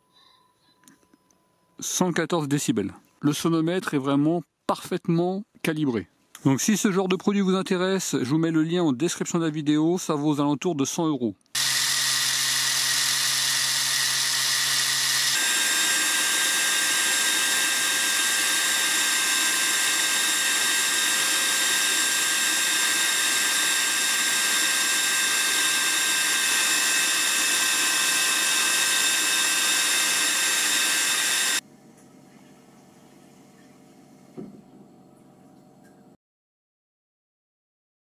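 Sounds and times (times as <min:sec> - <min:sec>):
angle grinder running: 0:11.6 - 0:31.6
machine with high whine: 0:11.6 - 0:31.6.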